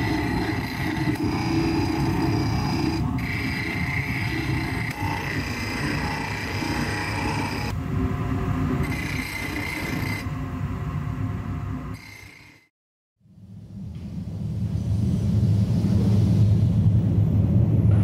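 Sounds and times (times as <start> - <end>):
tools scraping and grinding metal: 0.0 - 7.8.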